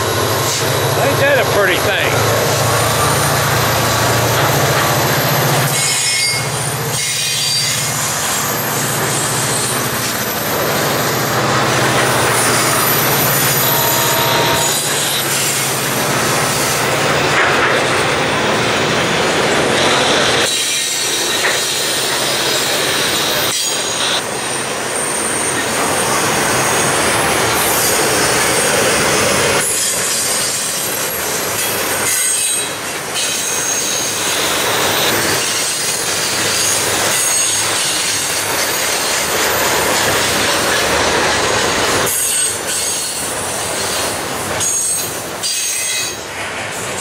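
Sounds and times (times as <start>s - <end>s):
steel wheels rolling on rails: 0.0s - 47.0s
high wheel squeals: 2.8s - 15.8s, 19.8s - 40.2s, 43.8s - 46.2s.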